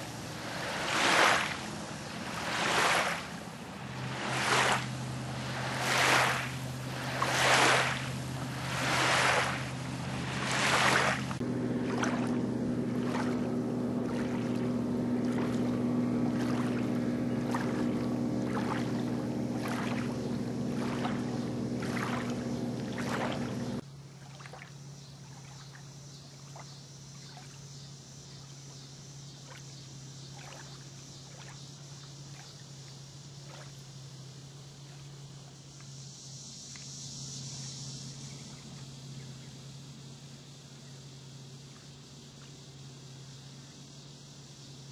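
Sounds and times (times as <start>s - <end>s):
waves lapping on gravel: 0.0s - 23.8s
low hum: 0.0s - 24.2s
loud droning hum: 0.0s - 44.9s.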